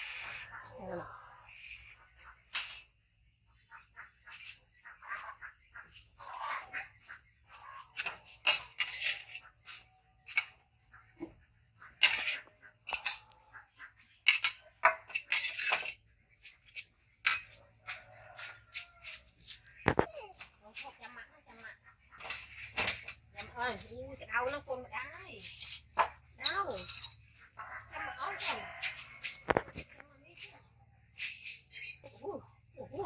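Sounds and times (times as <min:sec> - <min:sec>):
metal ladle scraping a wok: 0:07.8 - 0:10.6, 0:11.9 - 0:13.3, 0:31.1 - 0:32.2.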